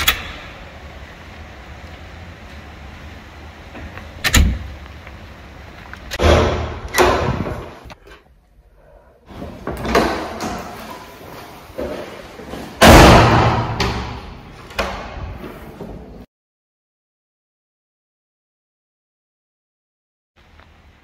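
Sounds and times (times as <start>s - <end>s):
door knocks and thuds: 6.2s - 7.7s.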